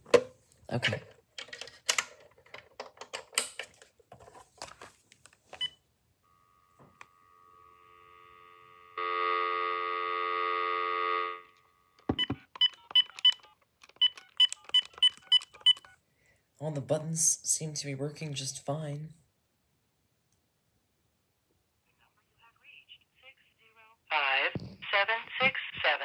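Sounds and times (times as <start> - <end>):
phone dial tone: 6.3 - 16.0.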